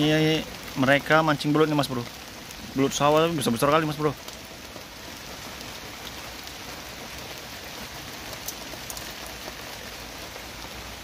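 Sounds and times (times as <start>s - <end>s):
wood fire crackling: 0.0s - 11.0s.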